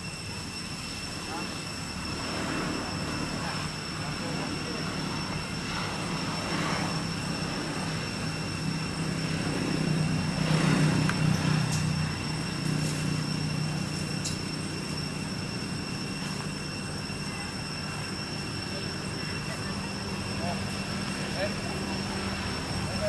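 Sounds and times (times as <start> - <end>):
low engine drone: 0.0 - 23.0
thin high-pitched whine: 0.0 - 23.0.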